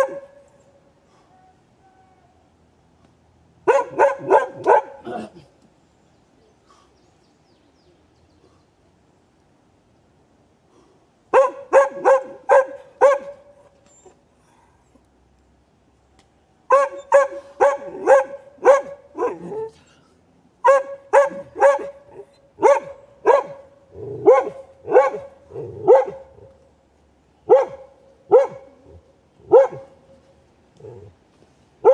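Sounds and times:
dog barking: 0.0 - 0.3, 3.6 - 5.3, 11.3 - 13.5, 16.7 - 19.7, 20.6 - 26.5, 27.5 - 28.8, 29.5 - 30.0.

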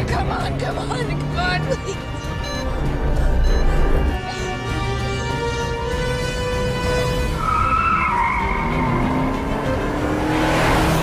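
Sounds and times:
tense orchestral film score: 0.0 - 11.0
car tyres squealing: 7.0 - 9.8.

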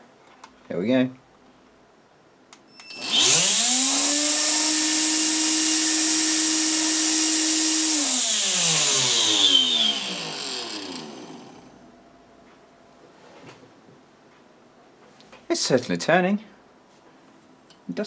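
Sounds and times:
vacuum motor whining: 2.9 - 11.8.

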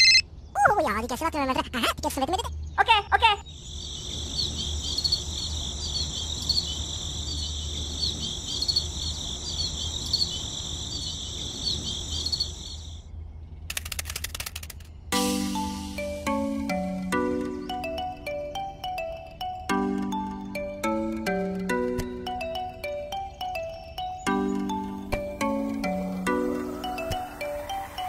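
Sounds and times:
crickets chirping: 3.4 - 13.1
quick clicks: 13.7 - 15.0
music notes: 15.1 - 28.0.

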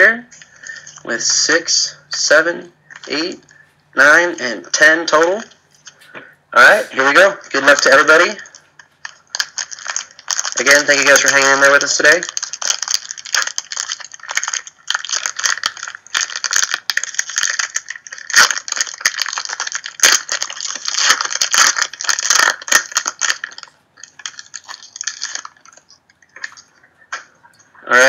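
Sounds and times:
foil wrapper crinkling and tearing: 2.8 - 3.6, 7.1 - 28.0.

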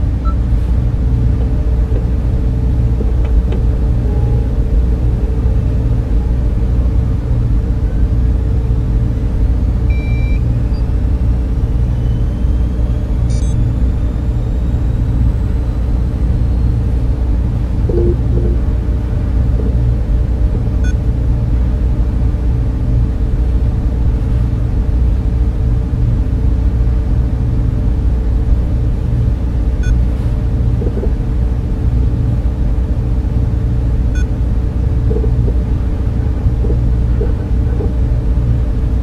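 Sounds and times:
machinery and fan drone: 0.0 - 39.0
faint electronic beeps: 9.9 - 11.0, 11.9 - 14.8, 17.9 - 18.7.

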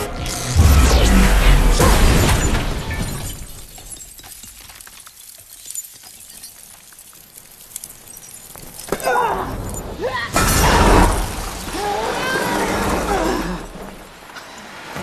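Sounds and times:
car crash with glass shattering: 0.6 - 4.9
falling glass and debris tinkling: 0.6 - 14.2.

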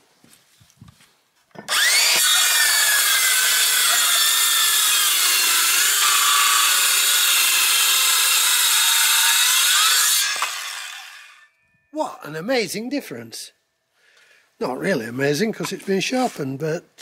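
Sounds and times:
circular saw cutting board: 1.6 - 11.5.

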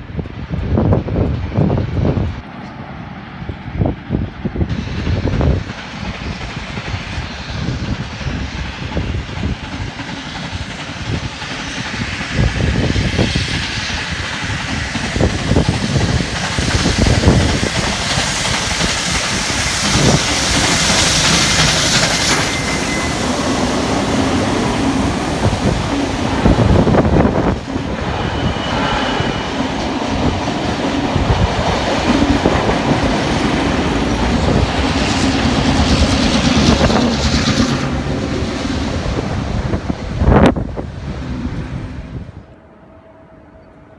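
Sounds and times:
steam locomotive exhaust and hiss: 0.0 - 43.9
train wheels clacking over rail joints: 4.7 - 27.9, 29.4 - 40.1.

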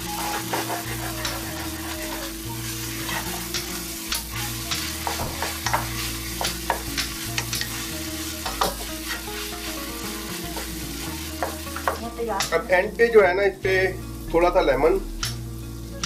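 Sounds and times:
spatula scraping and tapping pan: 0.0 - 12.6
meat sizzling in a frying pan: 0.0 - 16.0.

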